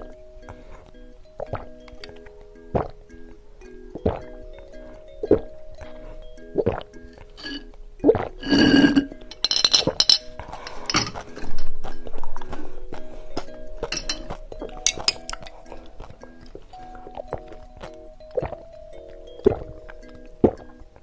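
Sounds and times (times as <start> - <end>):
background music melody: 0.0 - 21.0
slurping through a straw: 6.6 - 9.2
glasses clinking: 7.1 - 7.8, 8.4 - 12.4, 13.4 - 15.9.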